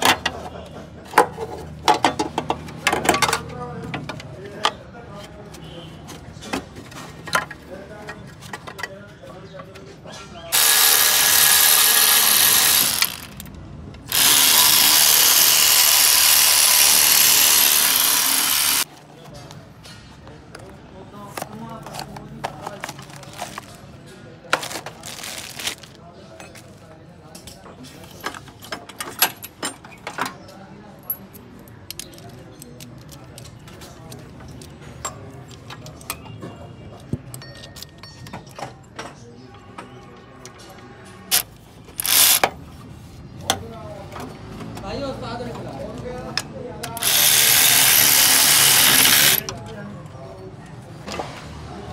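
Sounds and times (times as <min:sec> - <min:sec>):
cordless power tool spinning: 0:10.5 - 0:13.4, 0:14.1 - 0:18.9, 0:42.0 - 0:42.4, 0:47.0 - 0:49.4.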